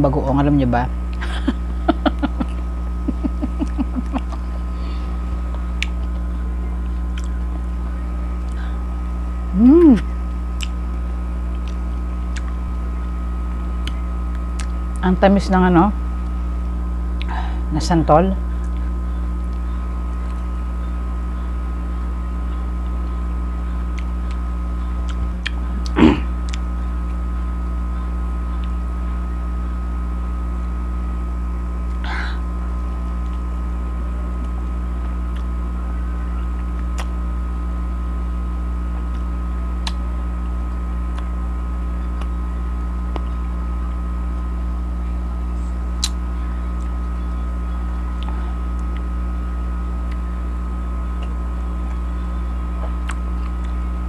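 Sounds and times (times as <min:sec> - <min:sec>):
electrical hum: 0:00.0 - 0:54.0
chewing crisp fruit: 0:05.4 - 0:07.8, 0:10.0 - 0:12.9, 0:13.8 - 0:14.9, 0:23.8 - 0:27.2, 0:28.5 - 0:28.9, 0:36.6 - 0:37.2, 0:38.9 - 0:41.4, 0:45.9 - 0:47.1, 0:51.1 - 0:53.9.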